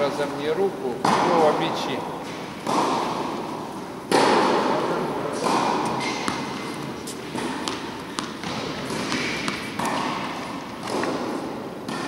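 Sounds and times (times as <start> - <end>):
steady hall hum: 0.0 - 12.0
tennis balls struck and bouncing: 0.9 - 12.0.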